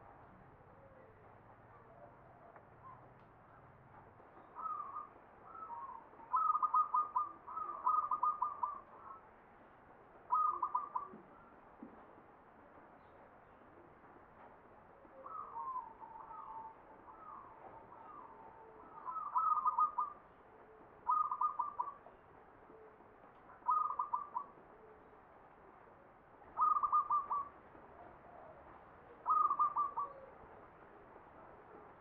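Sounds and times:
dove cooing: 4.5s - 9.2s, 10.3s - 11.3s, 15.2s - 20.2s, 21.0s - 22.1s, 23.6s - 25.0s, 26.6s - 30.4s.

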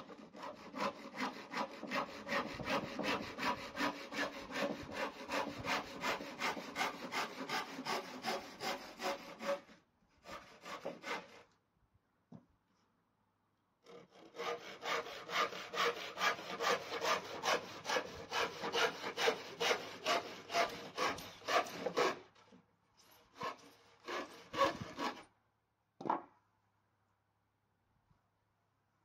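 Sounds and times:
hand saw cutting wood: 0.0s - 11.6s, 13.8s - 25.3s.

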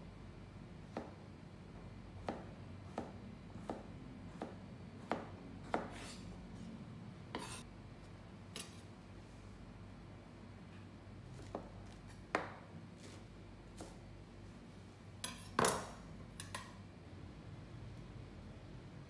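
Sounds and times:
knife scraping: 5.7s - 7.7s, 8.6s - 8.9s, 15.2s - 16.6s.

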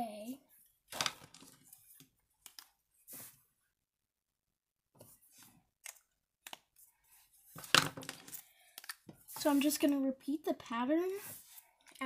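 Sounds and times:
marker clattering down: 0.9s - 1.6s, 7.6s - 9.1s
faint rubbing of markers: 9.2s - 10.0s.

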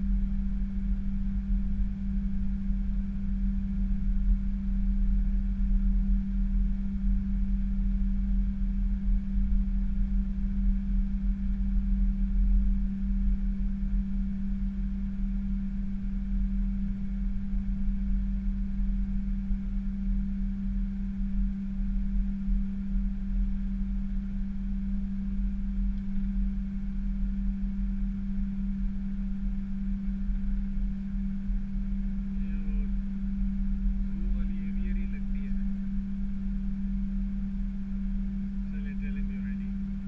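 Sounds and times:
jet engines rumbling in cockpit: 31.9s - 36.7s, 37.5s - 40.0s.

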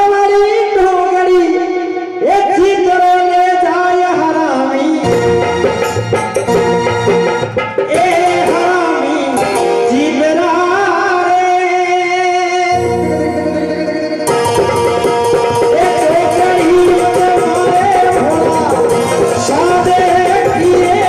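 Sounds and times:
man singing devotional song: 0.0s - 5.8s, 7.8s - 21.0s
instrumental accompaniment: 4.9s - 11.3s, 12.6s - 21.0s.

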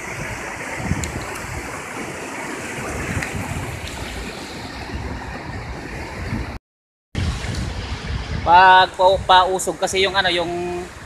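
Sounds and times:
low wind rumble on microphone: 0.0s - 6.6s, 7.2s - 11.0s
surf washing over beach: 0.0s - 6.6s, 7.2s - 11.0s.

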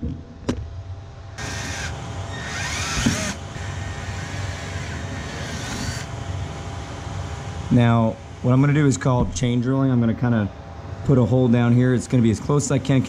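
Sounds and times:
cordless drill drilling: 1.4s - 6.1s.

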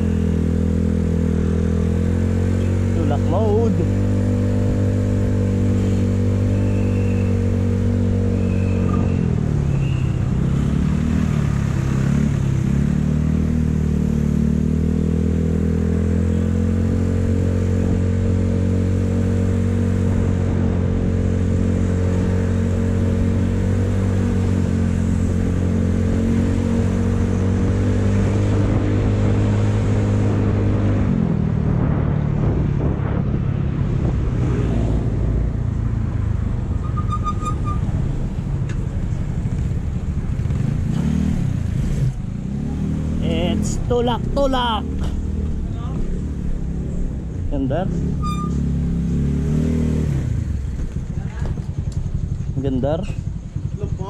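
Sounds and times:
motorcycle engine running: 38.0s - 54.0s.

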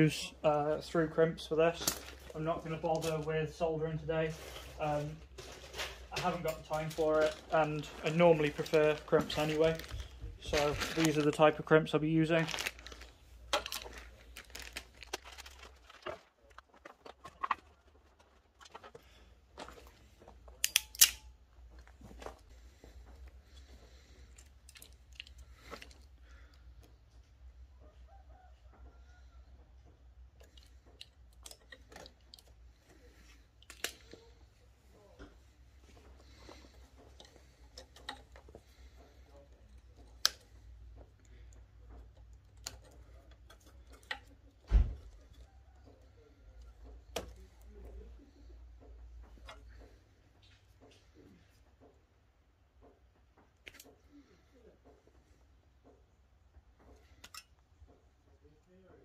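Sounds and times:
clicks and taps handling wires: 4.6s - 11.7s, 29.6s - 54.2s, 54.8s - 58.4s
hand tools clicking and clattering: 35.2s - 46.0s.

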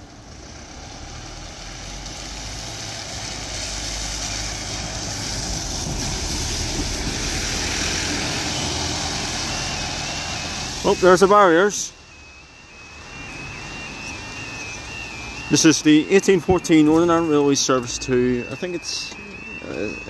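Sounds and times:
tyres hissing on wet road: 0.0s - 19.6s
bus engine rumble: 0.0s - 20.0s.

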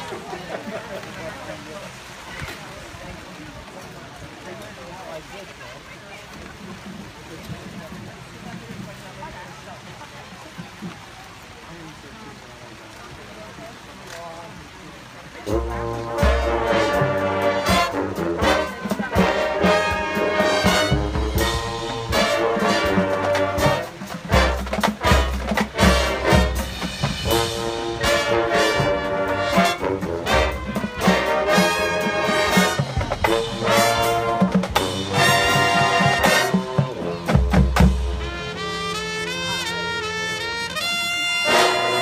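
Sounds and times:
drums: 6.2s - 11.6s, 15.2s - 42.0s
brass horns playing chords: 15.4s - 42.0s
low brass bass notes: 15.4s - 42.0s.

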